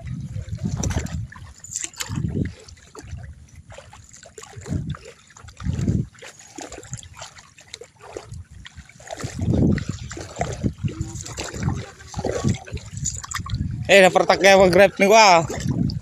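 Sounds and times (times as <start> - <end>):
dull low thumps: 0.0 - 1.5, 2.1 - 3.7, 4.5 - 6.2, 8.3 - 16.0
muddy water splashing and trickling: 0.0 - 16.0.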